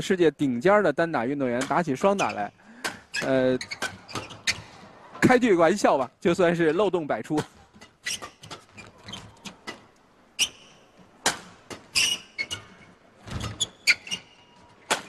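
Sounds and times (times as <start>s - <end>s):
shoes squeaking on court: 2.0s - 2.5s, 3.1s - 5.0s, 7.5s - 15.0s
rackets striking shuttlecock: 11.2s - 12.2s.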